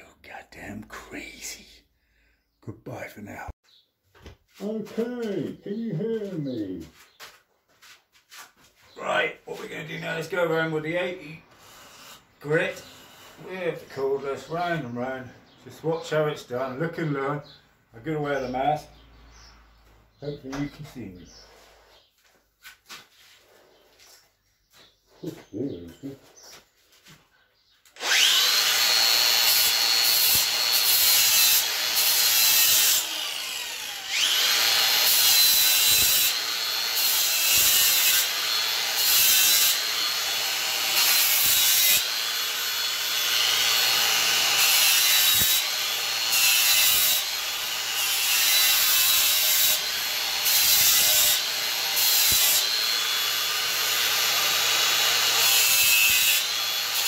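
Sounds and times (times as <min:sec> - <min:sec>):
angle grinder motor whine: 0:11.6 - 0:13.5, 0:28.0 - 0:57.0.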